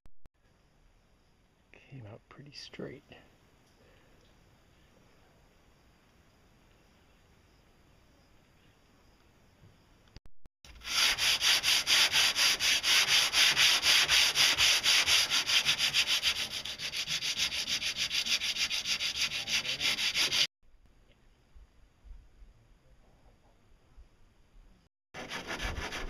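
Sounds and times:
hand sanding boat hull: 10.7 - 20.5, 25.2 - 26.0.

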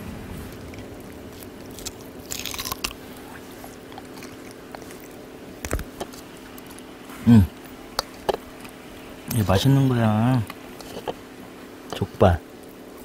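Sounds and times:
dogs biting and chewing: 0.5 - 6.8.

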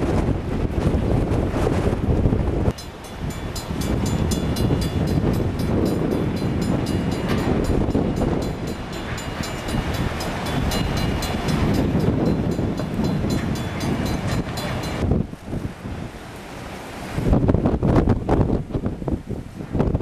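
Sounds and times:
road and wind rumble: 0.0 - 20.0
crossing bell ringing: 2.7 - 15.2.

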